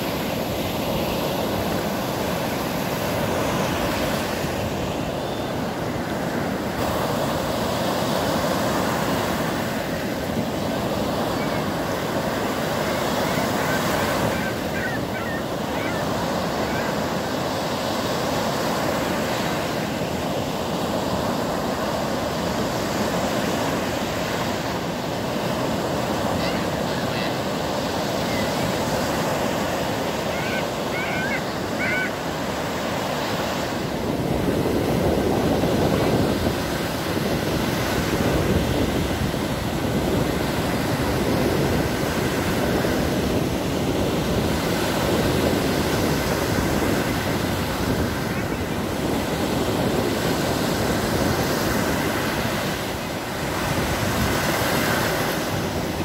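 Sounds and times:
waves breaking on sandy shore: 0.0 - 56.0
gull calling: 13.2 - 17.0, 28.2 - 28.6, 30.2 - 32.2.

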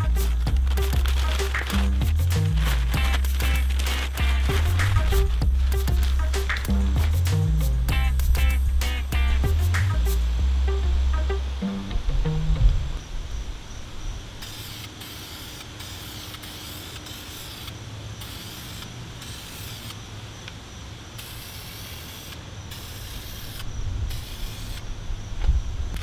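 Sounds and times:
spray can hissing: 0.0 - 10.1, 14.4 - 20.0, 21.2 - 24.8.

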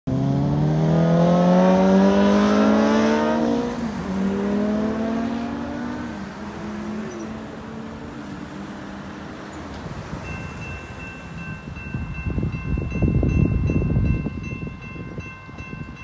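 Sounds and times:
car driving past accelerating: 0.1 - 8.9.

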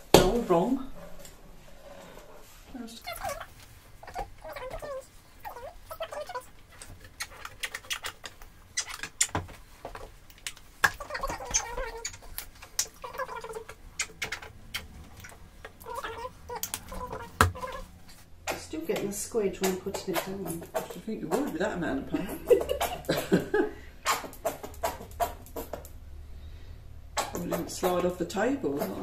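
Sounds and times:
paint squelching from tubes: 1.9 - 18.3.

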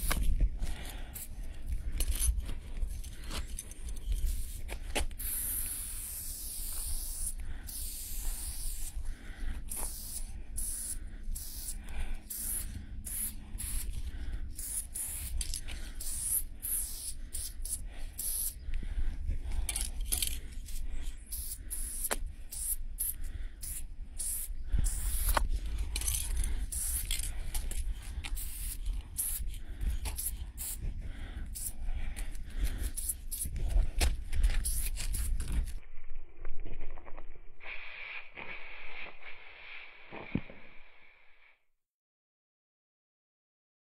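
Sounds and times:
spray paint can hissing: 0.0 - 0.2, 4.2 - 9.0, 9.7 - 18.6, 19.7 - 30.8, 31.5 - 31.8, 32.7 - 33.6, 34.6 - 35.6.

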